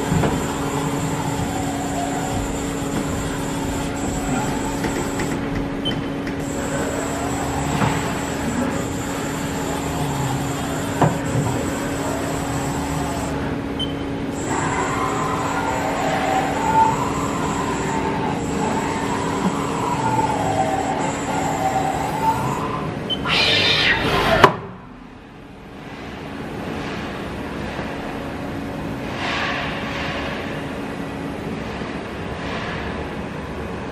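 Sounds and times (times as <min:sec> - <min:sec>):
machine humming: 0:00.0 - 0:24.2
servo whine rising and falling: 0:14.4 - 0:24.4.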